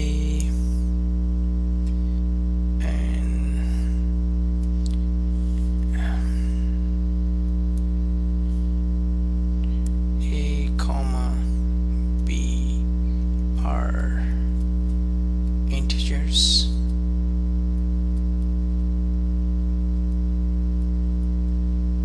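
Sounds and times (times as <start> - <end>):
electrical mains hum: 0.0 - 22.0.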